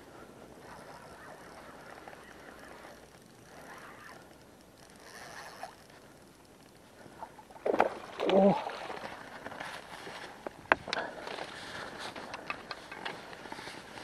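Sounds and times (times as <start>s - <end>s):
fishing reel winding: 0.6s - 6.8s.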